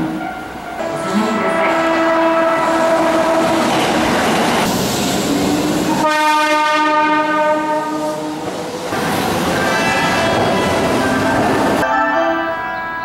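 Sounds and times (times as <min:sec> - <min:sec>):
train clattering along platform: 0:00.0 - 0:13.0
electric train horn blasts: 0:00.1 - 0:03.8, 0:06.0 - 0:08.2.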